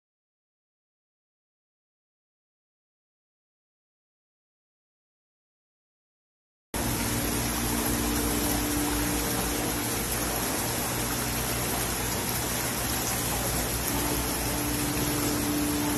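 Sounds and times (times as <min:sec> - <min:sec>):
low hum: 0:06.8 - 0:15.9
running water rushing: 0:06.8 - 0:15.9.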